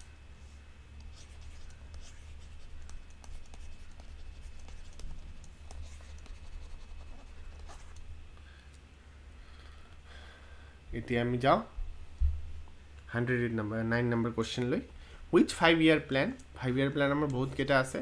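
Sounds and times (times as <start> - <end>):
low electrical hum: 0.0 - 18.0
stylus scratching on tablet: 1.0 - 8.0.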